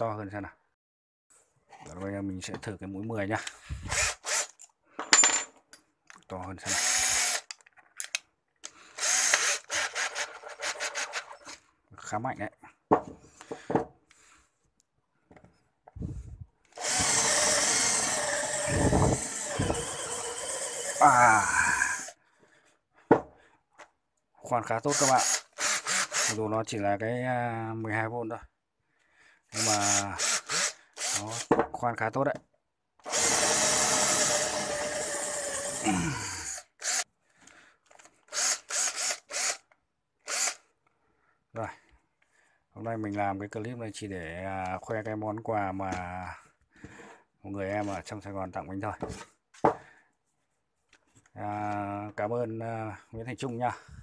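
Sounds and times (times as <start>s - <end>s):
cordless drill boring into wood: 3.8s - 4.5s, 6.6s - 7.6s, 8.9s - 11.6s, 16.7s - 22.1s, 24.8s - 26.5s, 29.5s - 31.6s, 33.0s - 37.1s, 38.2s - 40.7s
knocks on wood: 12.9s - 13.9s, 23.1s - 23.3s.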